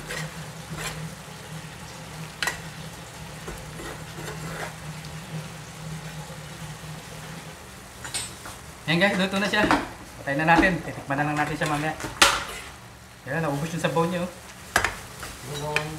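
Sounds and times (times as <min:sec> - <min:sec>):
metal spoon scraping frying pan: 0:00.0 - 0:01.1, 0:03.7 - 0:04.8
food sizzling: 0:00.0 - 0:15.9.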